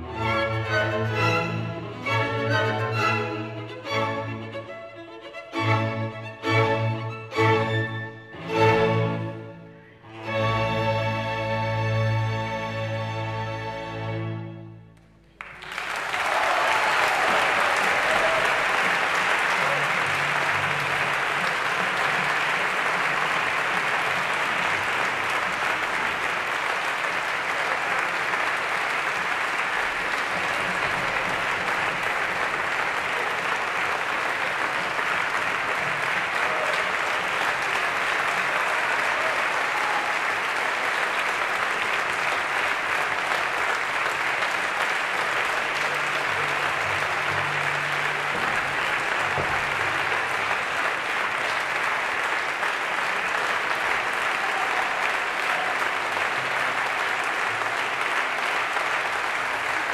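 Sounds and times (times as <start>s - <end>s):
audience applauding: 15.2s - 59.9s.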